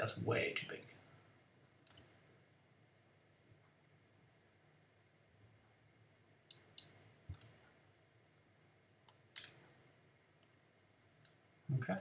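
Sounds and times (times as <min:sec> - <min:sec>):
faint low hum: 0:00.0 - 0:12.0
computer mouse clicks: 0:01.8 - 0:02.1.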